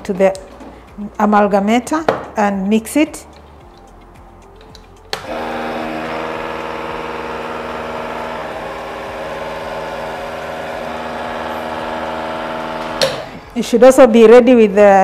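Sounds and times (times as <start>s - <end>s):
dental amalgamator buzzing: 5.1s - 13.6s.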